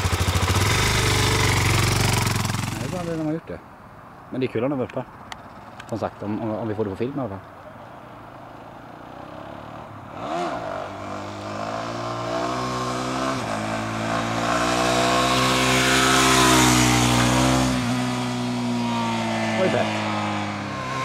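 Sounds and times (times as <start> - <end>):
motorcycle engine approaching: 0.0 - 3.3, 8.2 - 21.0.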